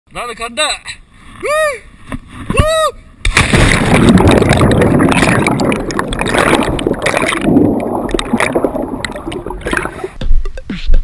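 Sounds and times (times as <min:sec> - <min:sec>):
water bubbling and churning: 0:03.3 - 0:10.2.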